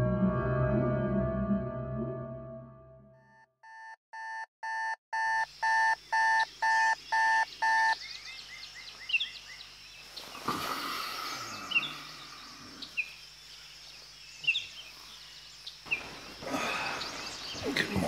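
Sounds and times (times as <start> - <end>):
alarm clock beeping: 3.2 - 8.0
birds chirping: 5.5 - 18.0.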